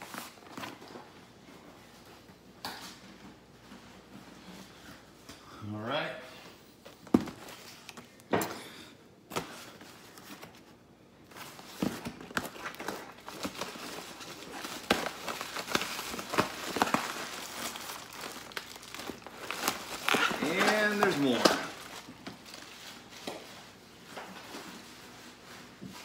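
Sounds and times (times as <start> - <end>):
paper and bubble wrap crinkling: 0.0 - 2.0, 9.5 - 26.0.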